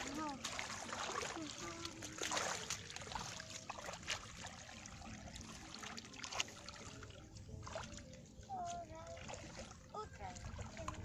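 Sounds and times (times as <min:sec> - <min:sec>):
muddy water splashing: 0:00.0 - 0:11.0
water trickling: 0:00.0 - 0:11.0.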